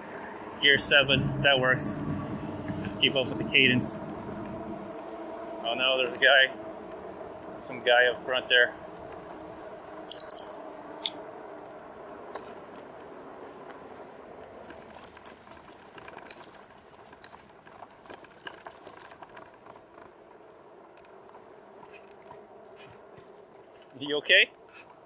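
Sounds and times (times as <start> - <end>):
tires rolling hum: 0.0 - 25.0
bike accessories rattling and clicking: 10.0 - 11.2, 12.3 - 25.0.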